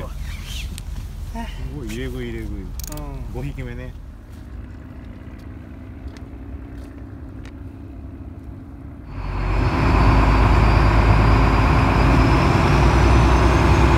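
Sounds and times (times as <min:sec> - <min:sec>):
boat engine running: 0:00.0 - 0:13.9
faint high whine: 0:09.0 - 0:13.8.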